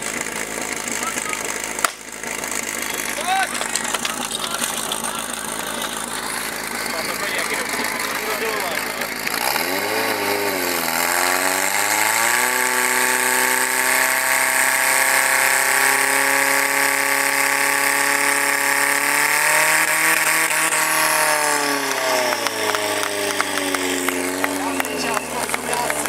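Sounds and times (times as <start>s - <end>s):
pump engine revving: 0.0s - 26.0s.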